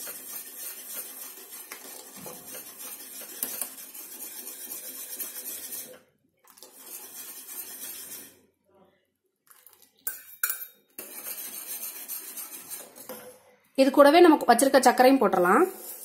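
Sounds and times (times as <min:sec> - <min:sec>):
whisk scraping metal pan: 0:00.0 - 0:08.4, 0:11.0 - 0:13.3, 0:15.2 - 0:16.0.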